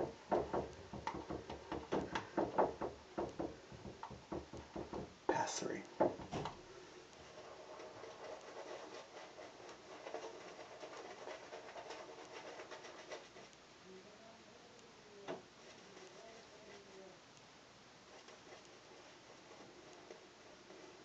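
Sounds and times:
shaving brush scratching on skin: 7.3 - 13.6, 18.1 - 21.0.

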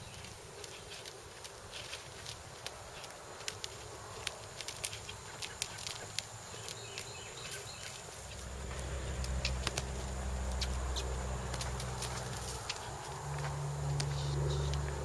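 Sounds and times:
low steady drone: 8.4 - 15.0.

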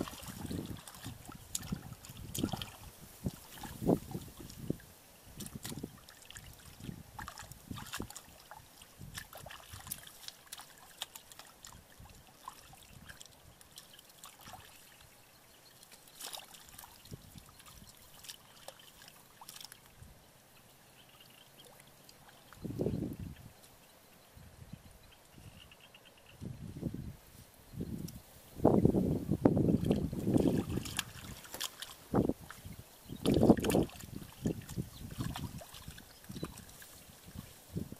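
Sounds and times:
hands splashing in shallow water: 0.0 - 4.8, 5.4 - 14.9, 15.9 - 19.9, 29.8 - 37.6.

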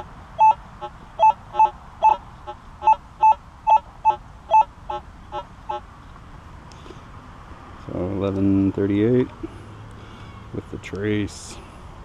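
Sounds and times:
metal detector beeping: 0.0 - 0.6, 1.2 - 2.2, 2.8 - 4.7.

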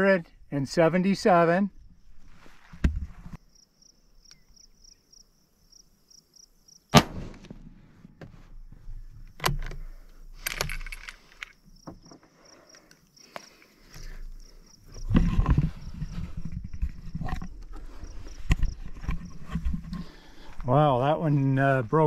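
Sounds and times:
rifle shot: 6.9 - 8.2
rifle bolt clicking and rattling: 9.2 - 13.4.

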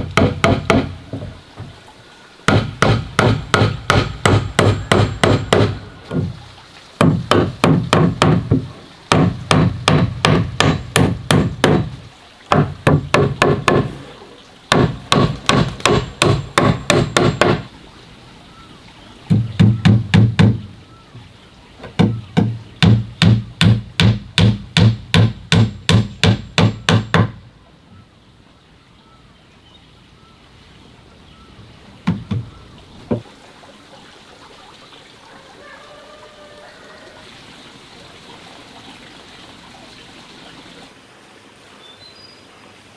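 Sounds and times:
hammer nailing into wood: 0.0 - 1.3, 2.5 - 6.3, 7.0 - 11.9, 14.7 - 17.7, 19.3 - 20.6, 22.0 - 27.4.

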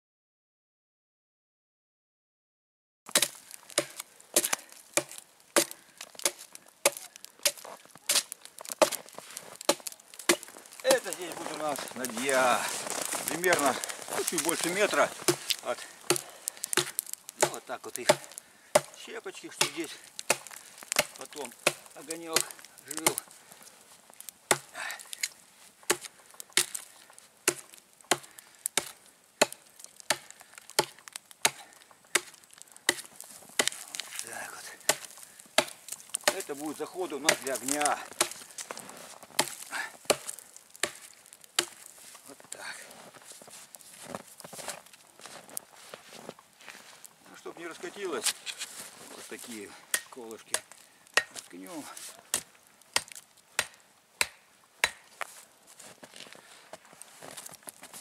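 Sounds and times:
hatchet chopping log: 3.1 - 11.2, 15.2 - 23.3, 24.5 - 34.0, 34.8 - 38.6, 39.3 - 41.9, 49.8 - 51.5, 52.2 - 55.2.

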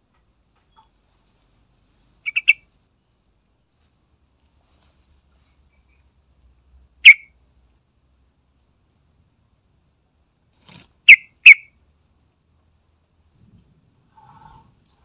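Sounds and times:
bird whistled calls: 2.3 - 2.6.

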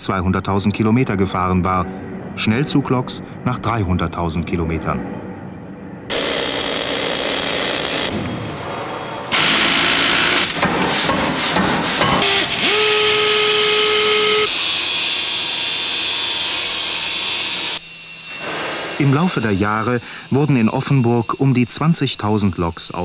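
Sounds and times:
drilling machine whine: 6.1 - 8.2, 9.3 - 10.6, 12.2 - 23.0
machine clatter and knocking: 10.3 - 12.4
harsh hiss of metal cutting: 18.5 - 23.0.

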